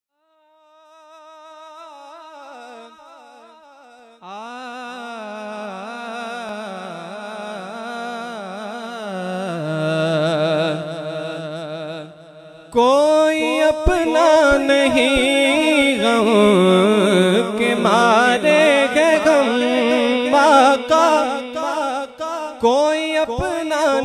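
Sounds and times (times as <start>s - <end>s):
man singing wordless melody: 4.2s - 24.0s
lower voice singing: 12.8s - 24.0s.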